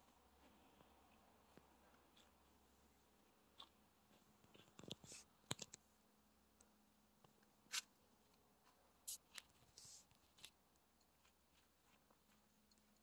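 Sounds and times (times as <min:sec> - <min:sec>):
faint short clicks and scuffs: 0:07.4 - 0:13.0.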